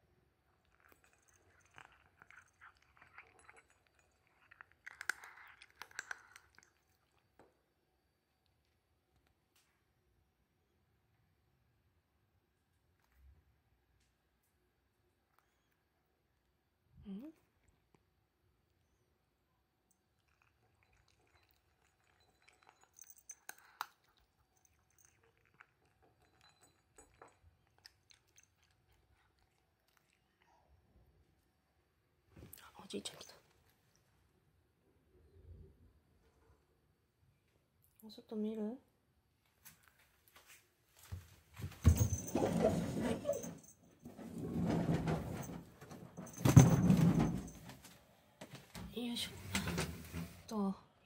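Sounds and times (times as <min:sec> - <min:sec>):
cat crunching dry kibble: 0:00.5 - 0:07.3.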